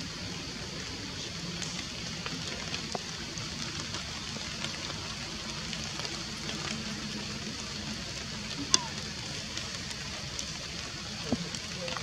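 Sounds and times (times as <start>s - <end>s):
faint ticks on leaves: 0.0s - 12.0s
forest background hiss: 0.0s - 12.0s.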